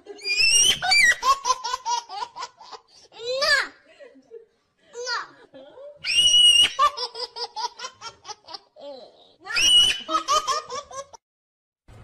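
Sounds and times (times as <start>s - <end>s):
high squeal: 6.0s - 6.8s.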